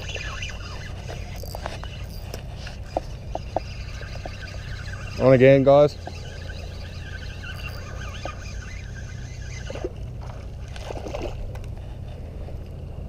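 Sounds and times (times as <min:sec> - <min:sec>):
fishing reel whirring: 0:00.0 - 0:11.5
fish splashing in water: 0:06.5 - 0:11.5.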